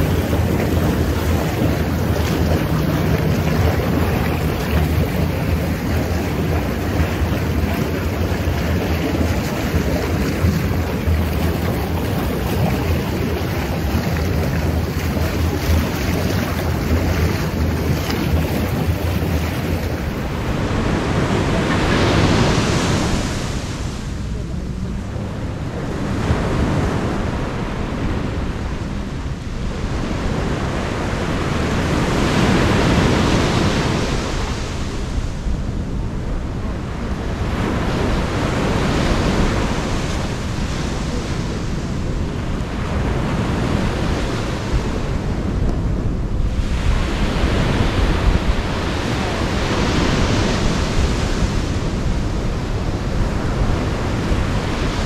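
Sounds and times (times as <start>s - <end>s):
ocean surf breaking: 0.0s - 28.7s, 46.4s - 55.0s
wind buffeting microphone: 0.0s - 55.0s.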